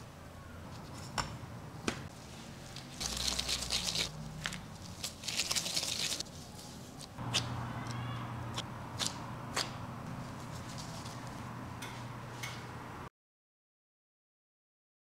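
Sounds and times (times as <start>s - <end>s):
crinkling rustling: 2.1s - 7.2s.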